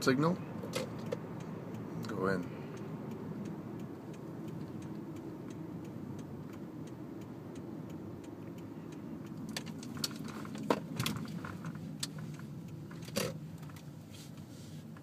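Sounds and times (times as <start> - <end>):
car engine and road hum: 0.0 - 15.0
turn signal ticking: 0.0 - 15.0.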